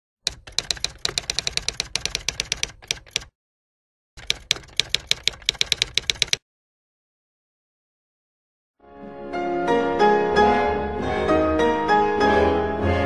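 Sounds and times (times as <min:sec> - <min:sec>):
typewriter key clacks: 0:00.2 - 0:03.3, 0:04.2 - 0:06.4.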